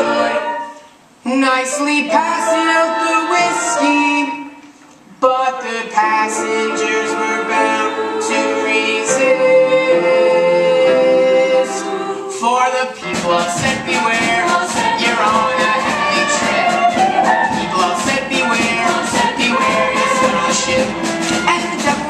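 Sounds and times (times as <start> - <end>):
voices singing sustained chord: 0.0 - 0.8, 1.5 - 4.5, 5.4 - 12.4
band and ensemble fast beat: 12.9 - 22.0.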